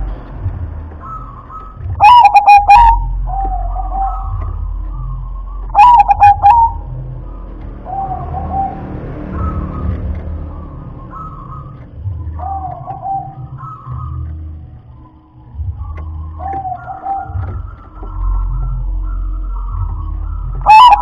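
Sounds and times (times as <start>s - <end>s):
dove cooing: 1.0s - 7.0s, 12.3s - 14.2s, 15.6s - 21.0s.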